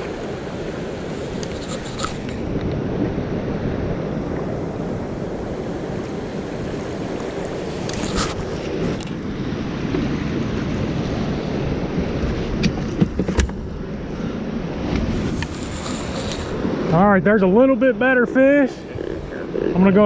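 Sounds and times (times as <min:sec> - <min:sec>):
turbulent river water rushing: 0:00.0 - 0:12.6
wind on microphone: 0:00.0 - 0:20.0.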